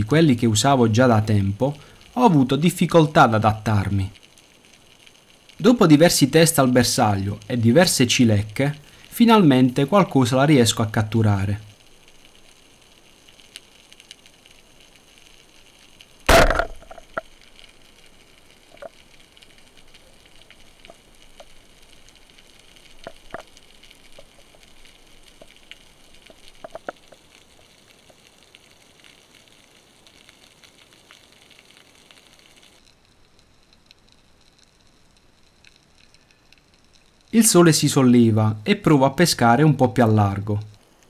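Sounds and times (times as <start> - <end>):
faint scattered clicks: 11.6 - 37.4
speargun shot underwater: 16.3 - 17.2.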